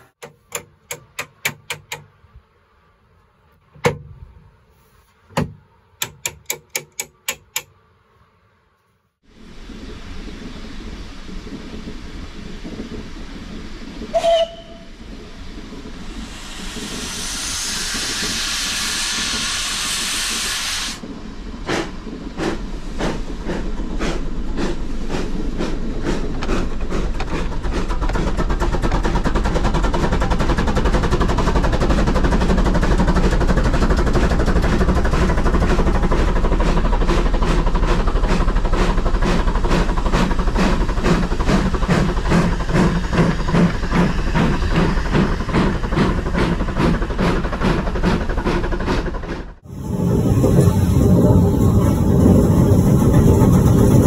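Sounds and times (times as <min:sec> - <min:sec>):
steam locomotive exhaust beats: 0:00.0 - 0:02.9, 0:09.2 - 0:54.0
sharp clicks and knocks: 0:00.2 - 0:02.2, 0:05.3 - 0:07.8
loud hiss of steam: 0:09.3 - 0:27.0
steam whistle blast: 0:14.1 - 0:15.0.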